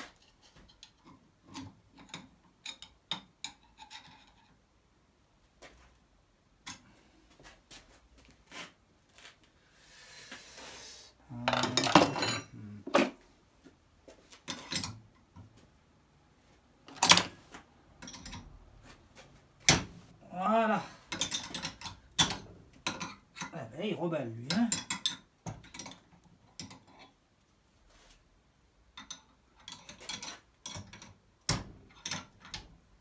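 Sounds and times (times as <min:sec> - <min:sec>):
metal tools clinking: 0:11.5 - 0:12.6, 0:21.1 - 0:23.6.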